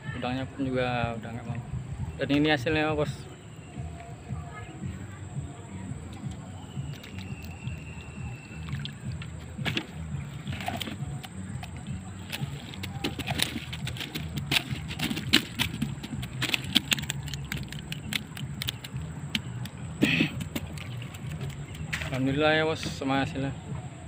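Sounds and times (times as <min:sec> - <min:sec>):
clicks and rattles of prawns: 0:08.6 - 0:22.4.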